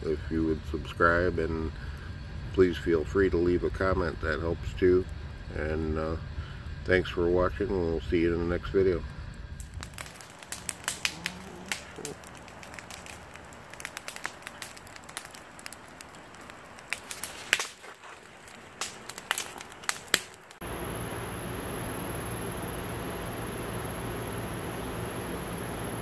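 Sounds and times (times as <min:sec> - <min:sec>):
wood fire crackling and popping: 0:00.0 - 0:20.6
steady hiss: 0:00.0 - 0:21.0.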